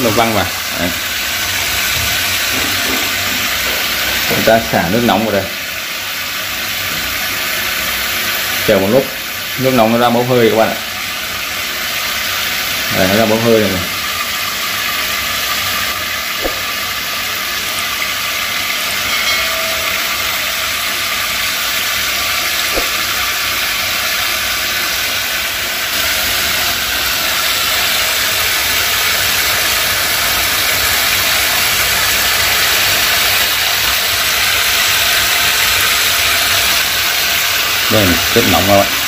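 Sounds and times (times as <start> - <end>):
water spraying into steel sink: 12.9 - 27.6.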